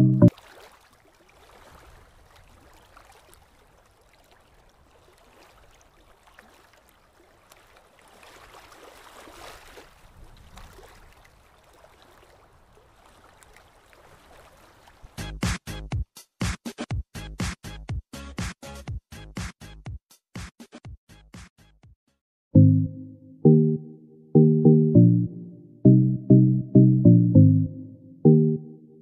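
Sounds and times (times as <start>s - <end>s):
small water splashes: 0.3s - 15.2s.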